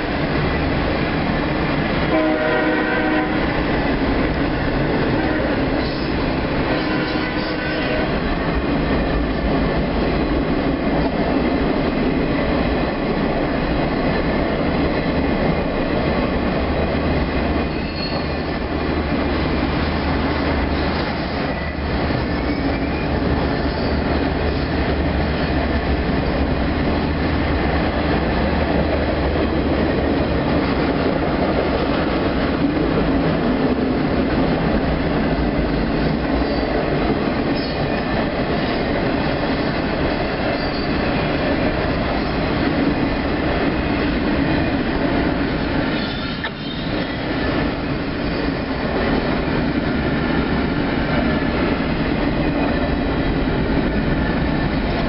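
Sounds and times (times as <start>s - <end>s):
freight train wheels rumbling: 0.0s - 55.0s
faint wheel squeals: 17.7s - 18.5s.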